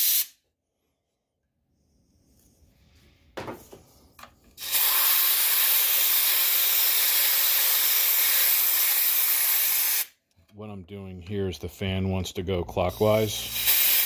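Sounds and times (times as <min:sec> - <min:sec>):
compressed air hissing: 0:00.0 - 0:00.4, 0:04.5 - 0:10.1, 0:12.8 - 0:14.0.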